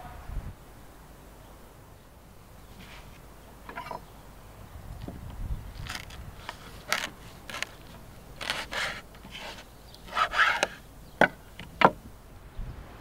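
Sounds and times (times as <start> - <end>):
knife scraping on wooden board: 5.8 - 10.8.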